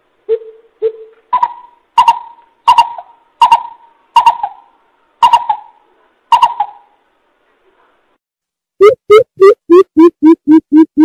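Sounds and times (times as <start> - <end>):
coucal calling: 0.3 - 7.0.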